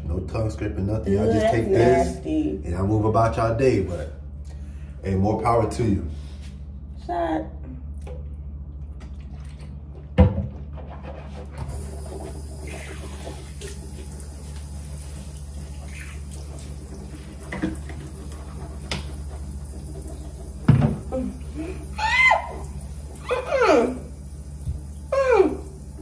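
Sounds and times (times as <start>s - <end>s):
low hum: 0.0s - 26.0s.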